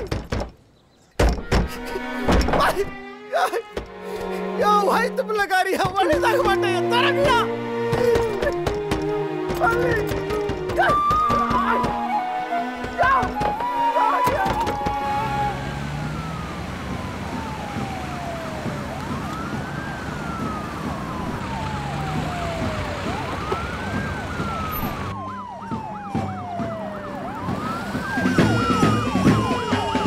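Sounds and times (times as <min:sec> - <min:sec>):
wailing siren: 0:05.9 - 0:30.0
warbling siren: 0:08.1 - 0:30.0.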